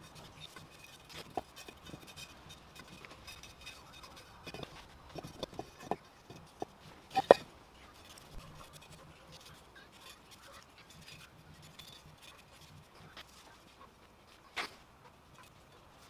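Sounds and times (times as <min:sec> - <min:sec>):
paintbrush scraping and dabbing: 0:00.0 - 0:16.0.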